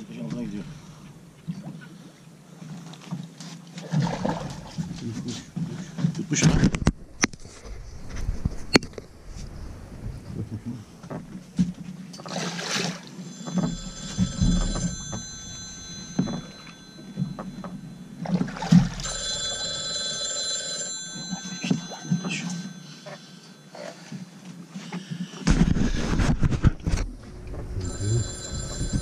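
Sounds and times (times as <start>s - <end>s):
phone ringtone: 13.2s - 24.3s, 27.8s - 29.0s
knocks and handling on boat deck: 13.4s - 23.2s.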